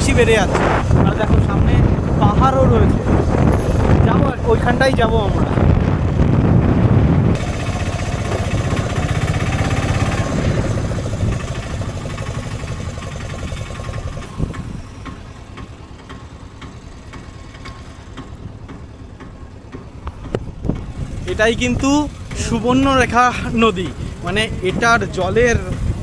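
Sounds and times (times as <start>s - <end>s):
engine running with knocking: 0.0s - 26.0s.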